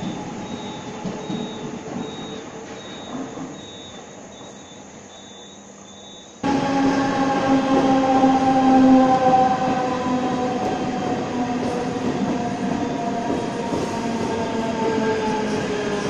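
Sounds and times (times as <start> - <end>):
train wheels rumbling on rail: 0.0 - 4.7, 6.4 - 16.0
train motor whine: 0.0 - 5.5.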